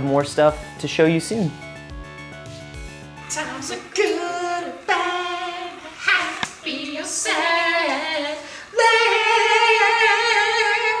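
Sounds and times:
person singing unaccompanied: 3.2 - 11.0.

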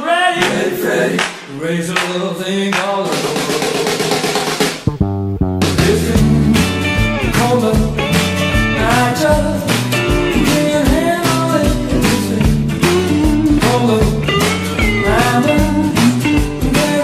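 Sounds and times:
song with singing and guitar: 5.6 - 17.0.

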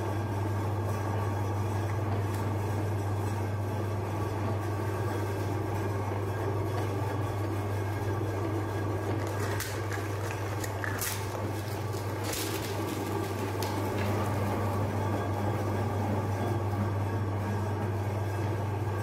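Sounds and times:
meat grinder motor humming: 0.0 - 19.0
cones crackling in grinder: 8.5 - 15.1.

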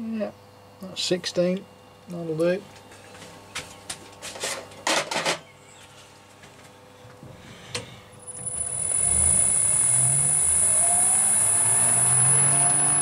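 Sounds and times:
lathe motor whining: 8.2 - 13.0.

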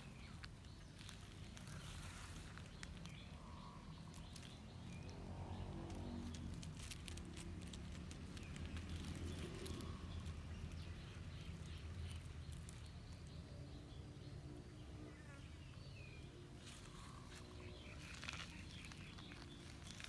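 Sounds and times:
small clicks and rustles: 0.0 - 13.4, 16.6 - 20.0
faint bird chirps: 15.0 - 20.0.

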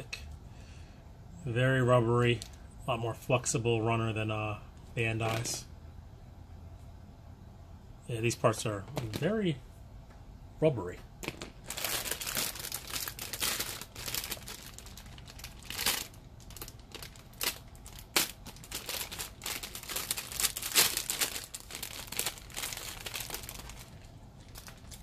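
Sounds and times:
plastic bags crinkling: 11.2 - 25.0.

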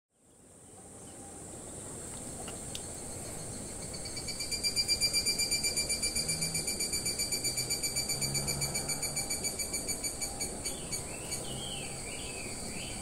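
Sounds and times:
steady high insect hiss: 0.1 - 13.0
pulsing ringing insect chirr: 2.6 - 13.0.

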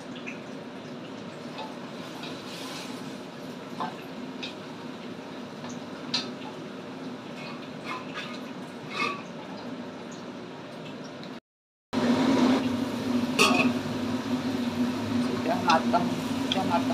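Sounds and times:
steady hum: 12.0 - 16.9
utensils clinking against wok: 13.4 - 13.8.

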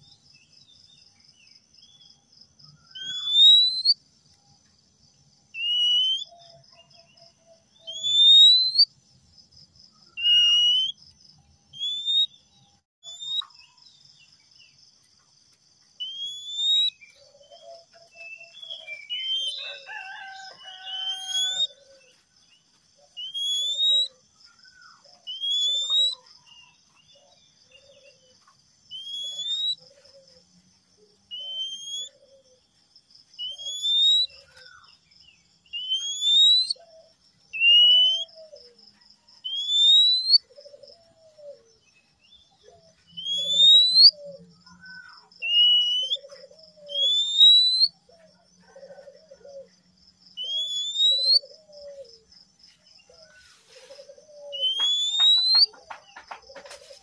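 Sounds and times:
bird whistling song: 2.7 - 4.0, 5.6 - 8.9, 10.0 - 11.0, 11.7 - 12.4, 13.0 - 13.8, 16.0 - 21.8, 23.0 - 28.2, 28.9 - 29.9, 31.3 - 32.4, 33.4 - 34.9, 35.7 - 38.6, 39.4 - 41.6, 42.3 - 48.0, 50.4 - 52.2, 54.0 - 56.6
bird chattering notes: 45.5 - 46.3, 54.6 - 56.3.

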